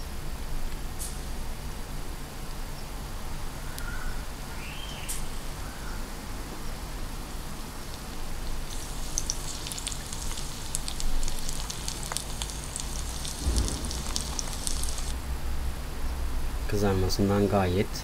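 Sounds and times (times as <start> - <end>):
chicken deep-frying in oil: 7.4 - 15.2.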